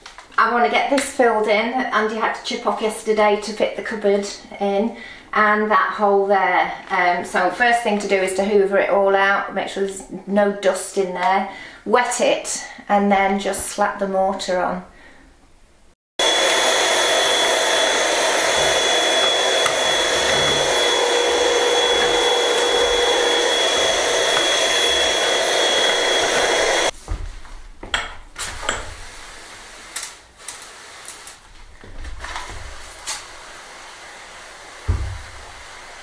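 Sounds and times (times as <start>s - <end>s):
handheld vacuum whining: 16.2s - 27.0s, 32.2s - 36.0s.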